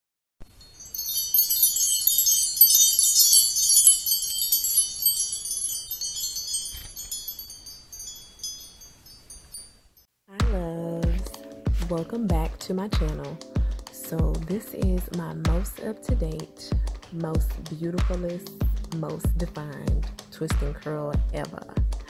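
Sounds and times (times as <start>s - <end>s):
sparkle chimes tinkling: 0.4s - 10.1s.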